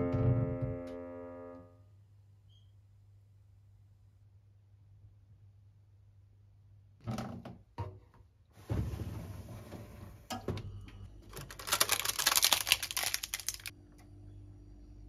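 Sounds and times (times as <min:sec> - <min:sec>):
plastic wrappers crinkling: 0:11.2 - 0:13.7.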